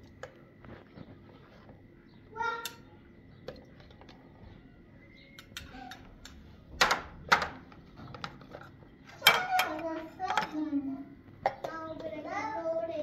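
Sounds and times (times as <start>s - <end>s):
spoon clinking on ceramic bowls: 9.2s - 10.6s.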